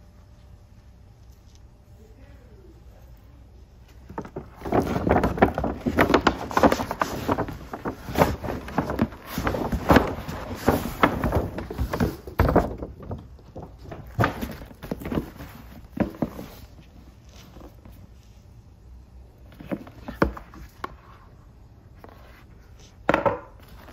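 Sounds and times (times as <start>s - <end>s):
paper bag crinkling: 4.0s - 17.8s
box knocking on tile floor: 23.1s - 23.5s.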